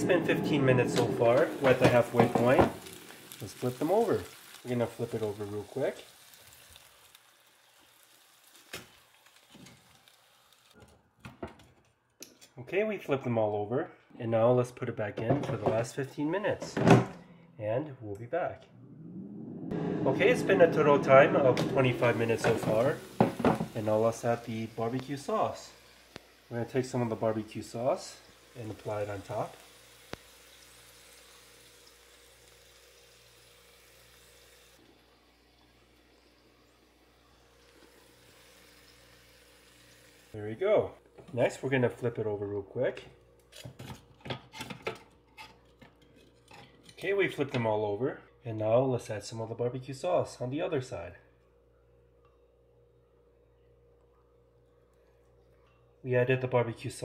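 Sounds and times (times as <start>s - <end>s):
faint steady hiss: 0.0s - 10.8s, 12.6s - 43.5s
faint sizzle: 0.0s - 11.0s, 15.8s - 43.8s
low hum: 17.0s - 25.1s.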